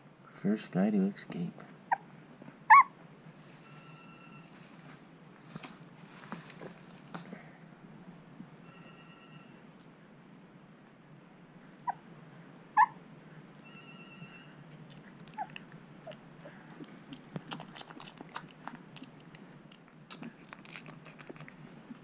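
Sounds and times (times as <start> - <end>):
puppies squeaking: 2.7 - 2.9, 15.3 - 16.2
puppies suckling: 14.7 - 22.0.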